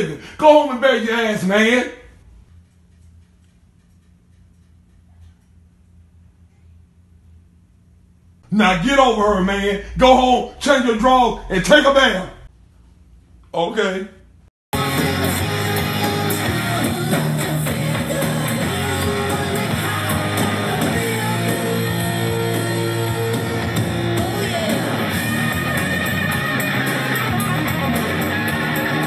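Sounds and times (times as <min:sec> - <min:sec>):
rock music with guitar: 0:14.8 - 0:29.0.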